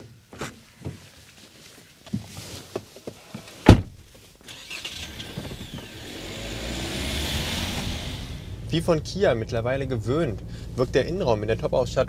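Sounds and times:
car door slamming: 3.6 - 4.0
diesel engine rumble: 4.5 - 12.0.

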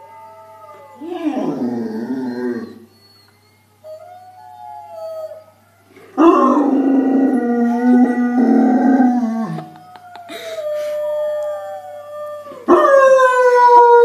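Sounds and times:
large dog howling: 0.0 - 3.2, 3.9 - 10.3.

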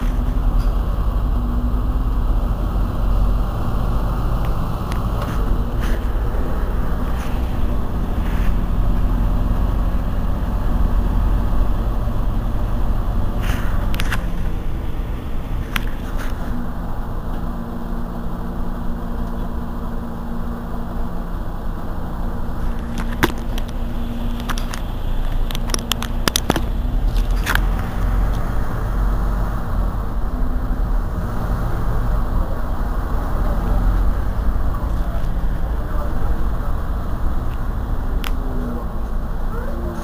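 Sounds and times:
bus engine idling: 0.0 - 40.0
sharp clicks: 22.8 - 28.5.

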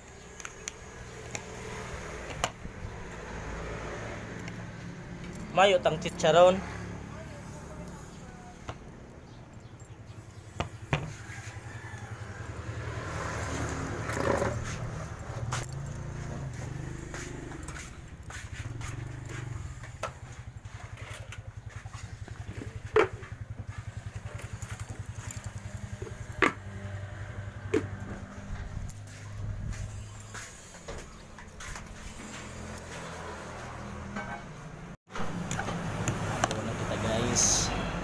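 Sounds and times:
small engine humming: 0.0 - 33.8
handling clicks and knocks: 2.2 - 3.3, 4.3 - 6.4, 8.6 - 26.8, 27.6 - 33.3, 35.1 - 36.6.

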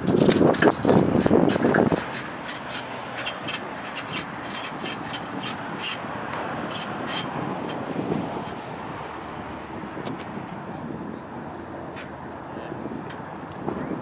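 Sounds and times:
bicycle rubbing noise: 0.0 - 11.0
wind buffeting microphone: 0.0 - 14.0.

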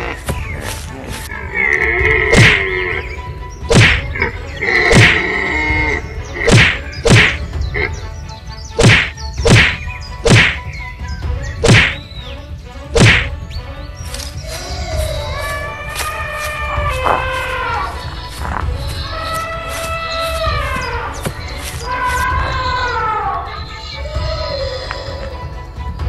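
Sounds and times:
background music: 0.0 - 26.0
cartoon whacks: 2.3 - 2.6, 3.7 - 4.1, 4.9 - 5.2, 6.5 - 7.4, 8.8 - 10.7, 11.6 - 12.0, 13.0 - 13.3.

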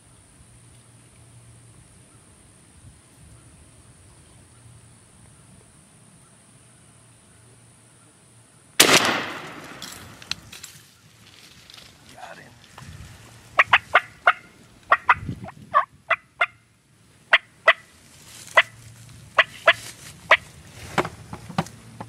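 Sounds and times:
wild turkeys calling: 13.6 - 16.6, 17.3 - 17.9, 18.5 - 18.8, 19.4 - 20.5.

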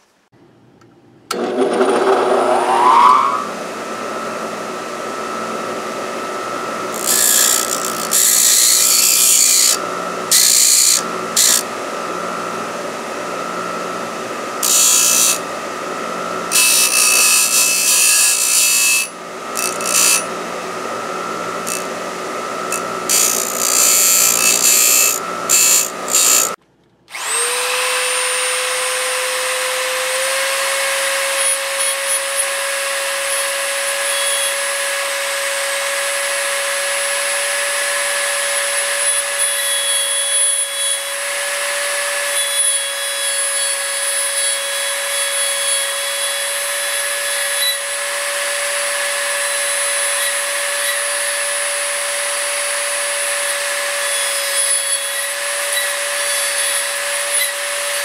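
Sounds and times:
rotary tool high whine: 1.3 - 32.5.

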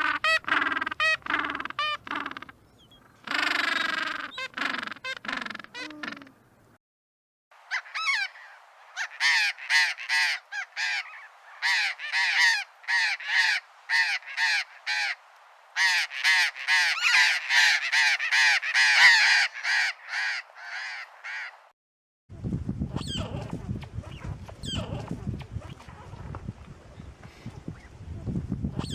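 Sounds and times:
parrot harsh screechy calls: 7.7 - 15.2, 15.8 - 21.5.

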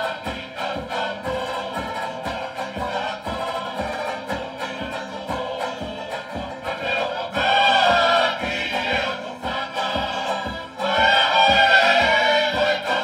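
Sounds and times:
group of singers: 0.0 - 13.0
steady drum beat: 0.0 - 13.0
strummed strings: 0.0 - 13.0.

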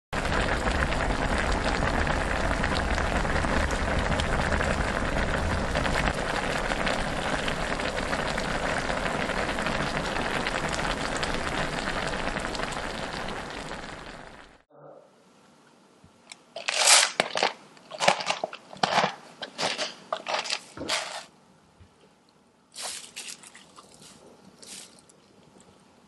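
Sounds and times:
stew bubbling at a boil: 0.2 - 14.6.

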